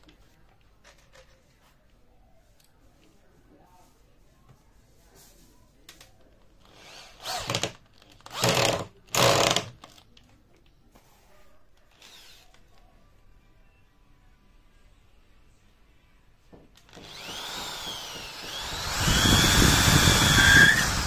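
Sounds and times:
cordless drill boring into wood: 6.7 - 9.7, 12.0 - 12.5, 16.9 - 21.0.

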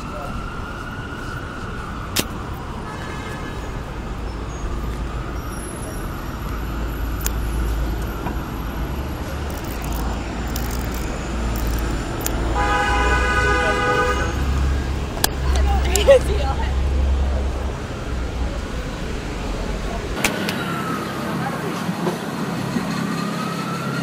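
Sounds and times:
rumble of passing vehicles: 0.0 - 24.0
car horn: 12.5 - 14.6.

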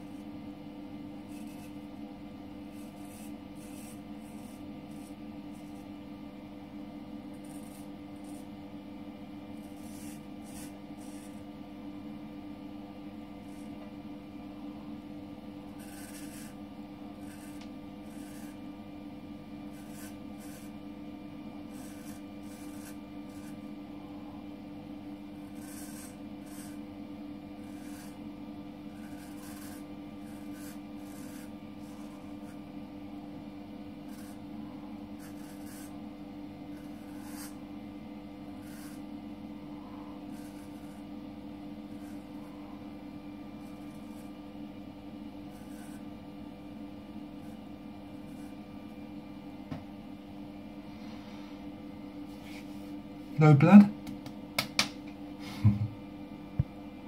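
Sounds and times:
steady low hum: 0.0 - 57.0
razor scraping stubble: 1.3 - 1.8, 2.7 - 5.9, 7.4 - 8.5, 9.6 - 11.4, 15.7 - 16.6, 17.2 - 18.6, 19.7 - 20.8, 21.7 - 23.7, 25.4 - 26.8, 27.6 - 28.2, 28.9 - 32.6, 34.0 - 34.5, 35.2 - 36.0, 36.7 - 37.6, 38.5 - 39.0, 40.3 - 41.1, 41.9 - 42.6, 43.6 - 44.4, 45.4 - 46.1.

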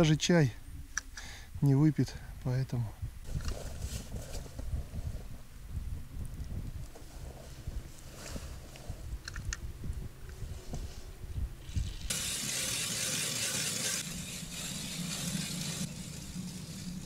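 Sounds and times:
ice auger grinding through ice: 12.0 - 17.0.

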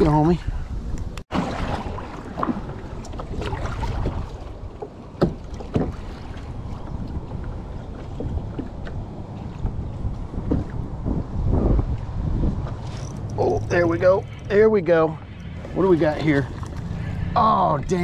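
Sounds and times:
wind buffeting microphone: 0.0 - 18.0
waves lapping against kayak hull: 1.2 - 11.5, 15.2 - 17.4.

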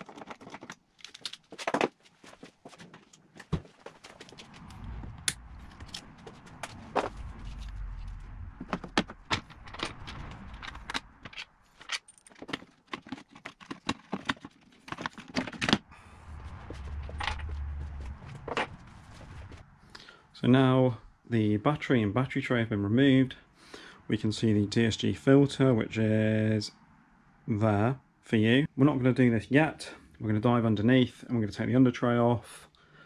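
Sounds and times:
parts and tools clattering: 0.0 - 4.4, 8.6 - 15.9
low rumble: 4.2 - 11.6, 15.8 - 19.9.

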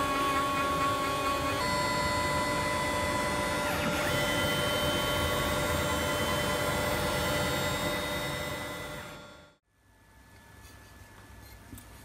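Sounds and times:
router spindle cutting metal: 0.0 - 9.4.

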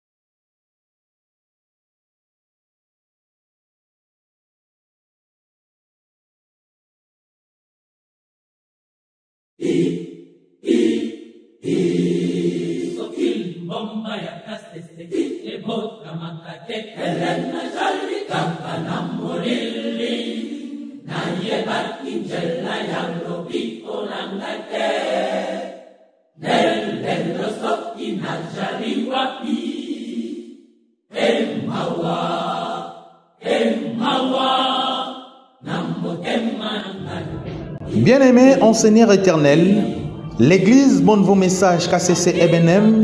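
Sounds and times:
choir singing in unison: 9.6 - 43.0.

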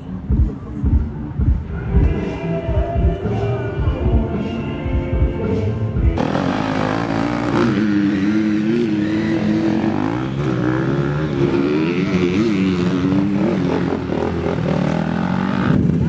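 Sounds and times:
motorbike engines idling: 6.0 - 16.0.

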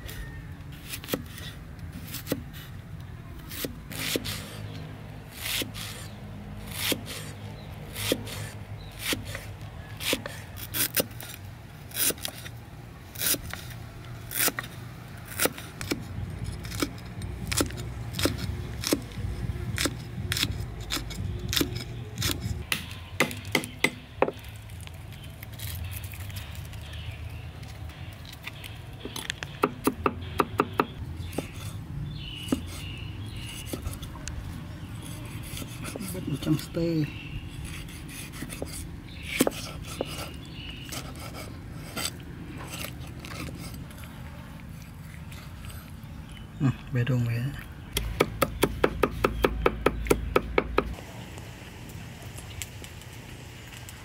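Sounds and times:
steady low hum: 14.8 - 24.3.

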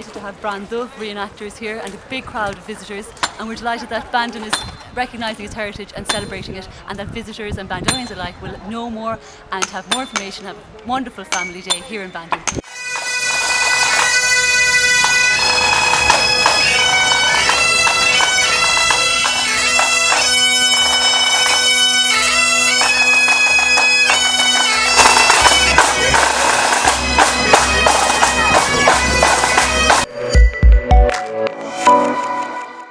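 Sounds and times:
bagpipes playing: 12.6 - 30.8
drums beating time: 12.9 - 32.8.

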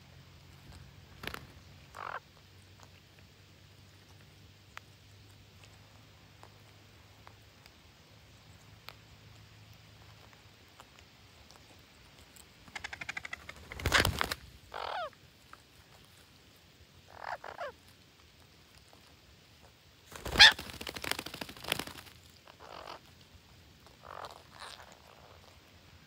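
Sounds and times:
parakeets squawking: 1.9 - 2.2, 12.7 - 15.1, 17.1 - 17.8, 20.2 - 20.6, 22.6 - 23.0, 24.0 - 25.3.

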